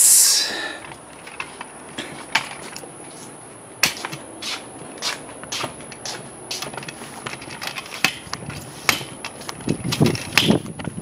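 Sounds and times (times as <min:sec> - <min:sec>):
faint high hiss: 0:00.0 - 0:00.8.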